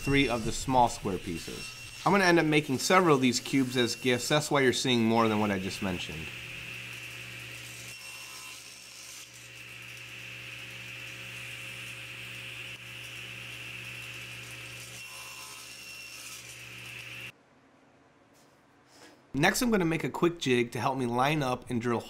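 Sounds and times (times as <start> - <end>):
table saw running: 0.0 - 17.3.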